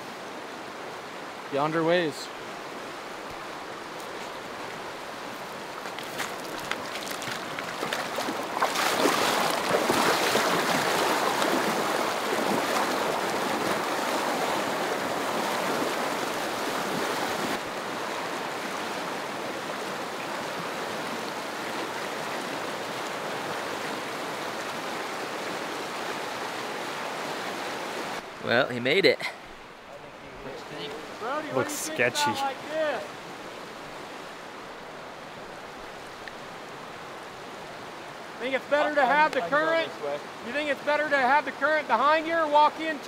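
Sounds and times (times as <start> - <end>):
river rushing over rocks: 0.0 - 43.0
person wading splashing: 5.8 - 17.5.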